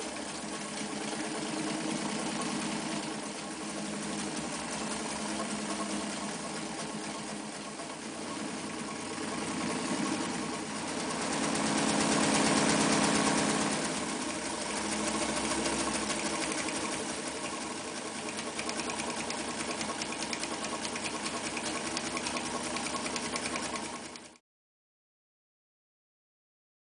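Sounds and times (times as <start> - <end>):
sewing machine stitching: 0.0 - 24.4.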